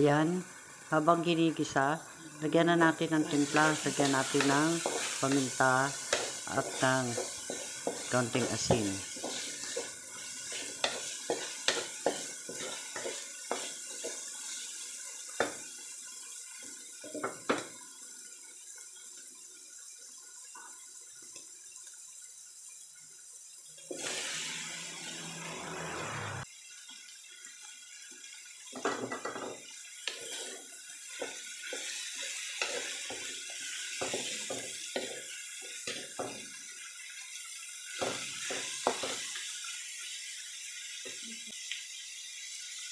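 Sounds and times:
meat sizzling in a wok: 0.0 - 42.9
wooden spatula scraping a pan: 3.2 - 14.7, 30.0 - 35.2
loud rush of sizzling: 23.9 - 26.5.

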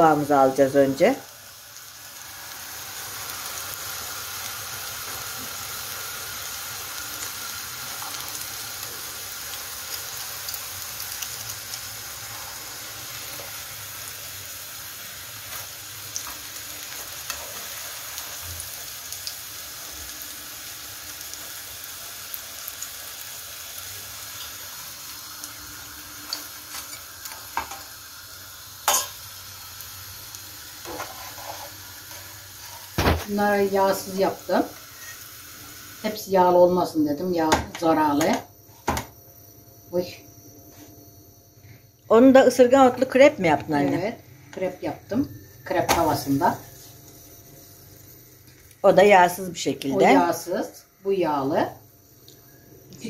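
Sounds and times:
fritters sizzling in oil: 0.0 - 38.4, 42.5 - 53.0.

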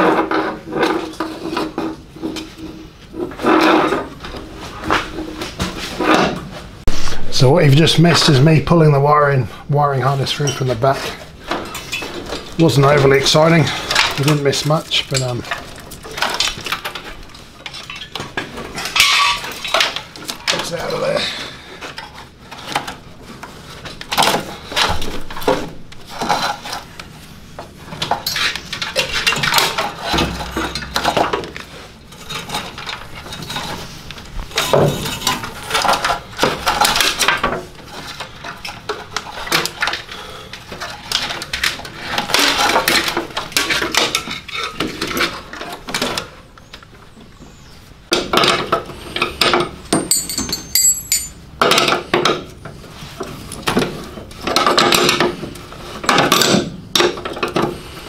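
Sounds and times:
wires rustling and clattering: 10.0 - 46.9, 48.1 - 58.0
metal spanners clinking: 11.6 - 16.3, 49.4 - 51.4.

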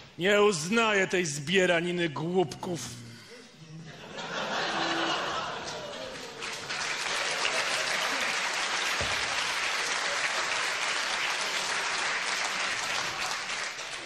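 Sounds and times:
audience applauding: 4.6 - 14.0.

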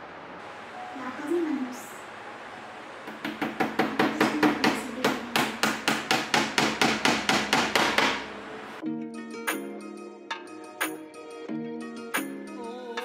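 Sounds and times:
hammer tapping nails: 3.1 - 8.3
background music: 8.2 - 13.0.

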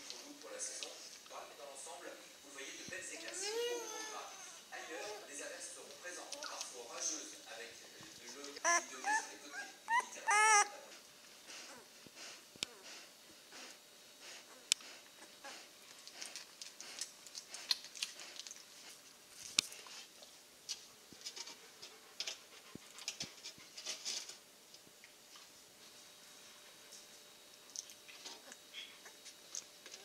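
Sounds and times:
puppy whimpering: 3.4 - 5.3, 8.6 - 10.8.

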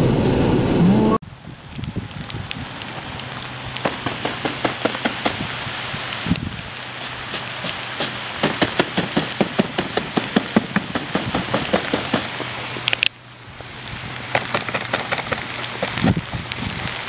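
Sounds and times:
wind rushing: 0.0 - 2.9, 15.5 - 17.0
snow pelting microphone: 0.0 - 17.0.

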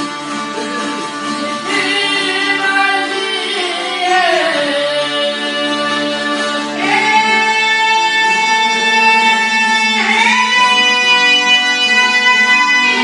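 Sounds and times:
plucked string instrument: 0.0 - 13.0
person singing long notes: 0.4 - 13.0.

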